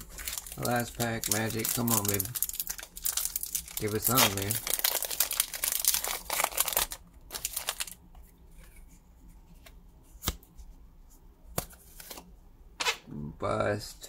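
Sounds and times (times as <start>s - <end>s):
foil wrapper crinkling: 0.0s - 8.0s.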